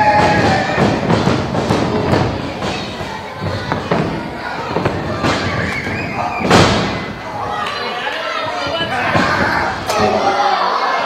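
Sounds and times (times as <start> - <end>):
wrestling strikes thudding: 0.0 - 7.4.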